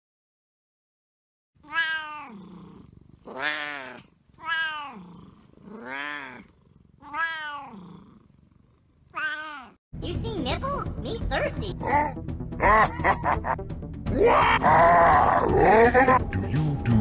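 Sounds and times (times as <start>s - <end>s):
cat meowing loudly: 1.6s - 2.4s, 3.3s - 5.0s, 5.8s - 6.4s, 7.0s - 7.8s, 9.2s - 9.8s.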